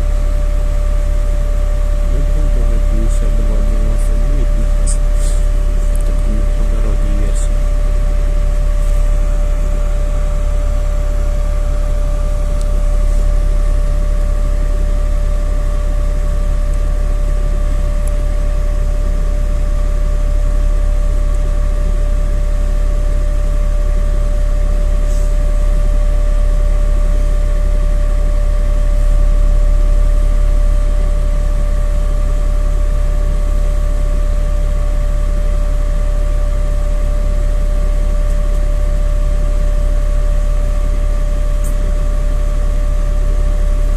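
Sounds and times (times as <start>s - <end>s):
even-pitched whine: 0.0s - 27.5s
bus cabin rumble: 0.0s - 43.9s.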